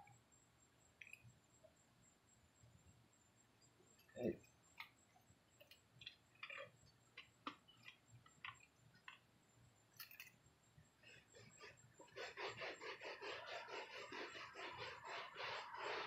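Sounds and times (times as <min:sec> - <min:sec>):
rag wiping leather seat: 0:11.6 - 0:16.0.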